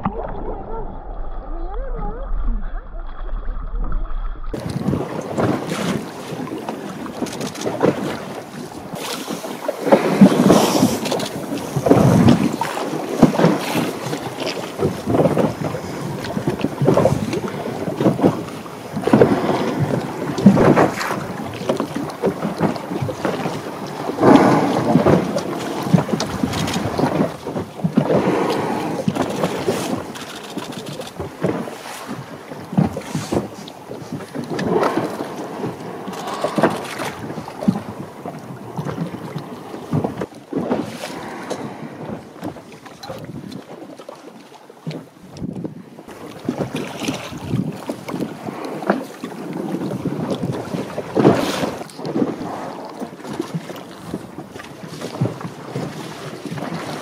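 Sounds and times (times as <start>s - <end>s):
wind buffeting microphone: 1.5s - 30.2s, 45.3s - 57.0s
water splashing against boat hull: 3.9s - 57.0s.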